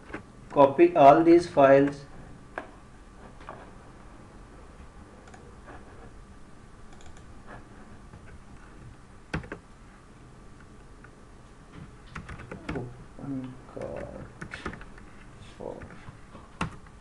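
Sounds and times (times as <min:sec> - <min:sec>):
keyboard and mouse clicks: 0:06.9 - 0:07.3, 0:09.3 - 0:09.6, 0:12.1 - 0:12.9, 0:13.8 - 0:15.1.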